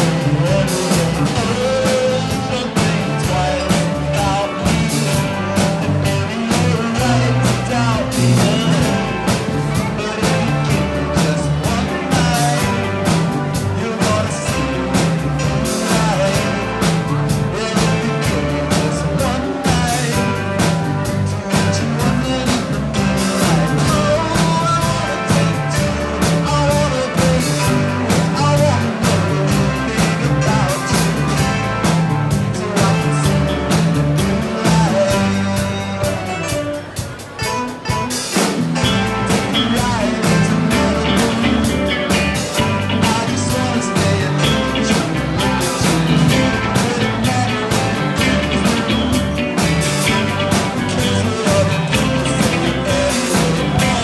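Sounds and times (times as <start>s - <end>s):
bass line: 0.0s - 54.0s
drum kit: 0.0s - 54.0s
electric guitar: 0.0s - 54.0s
man singing: 0.0s - 54.0s.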